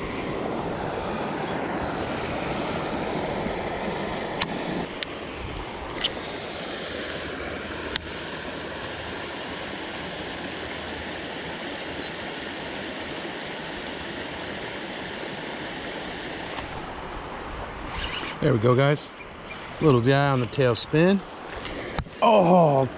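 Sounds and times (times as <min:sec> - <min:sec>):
water rushing over rocks: 0:19.7 - 0:22.9.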